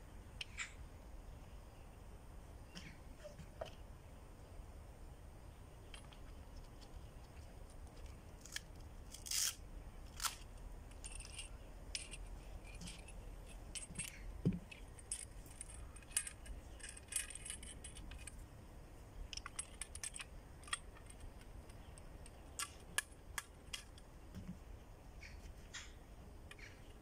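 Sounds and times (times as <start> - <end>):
clicks and clinks of handled gear: 5.8 - 18.5, 19.2 - 24.6.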